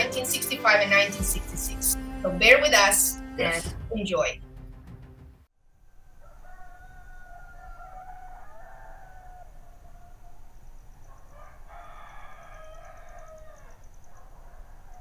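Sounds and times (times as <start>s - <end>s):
rooster crowing: 5.8s - 15.0s.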